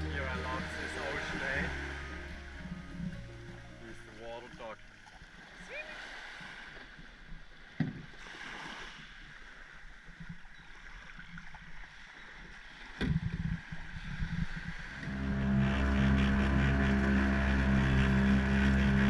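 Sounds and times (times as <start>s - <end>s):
low rumbling thumps: 0.0s - 4.2s, 13.0s - 19.0s
shallow water splashing: 0.0s - 19.0s
small waves washing on sand: 5.4s - 10.2s.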